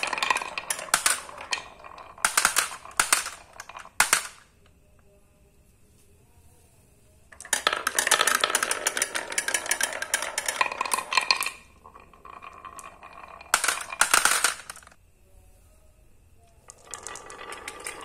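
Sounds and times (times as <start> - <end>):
marbles clattering down wooden ramp: 0.0 - 4.5, 7.4 - 15.0, 16.7 - 18.0
marbles dropping into plastic tray: 0.0 - 4.5, 7.4 - 15.0, 16.7 - 18.0
marbles rolling in wooden groove: 0.0 - 4.5, 7.4 - 15.0, 16.7 - 18.0.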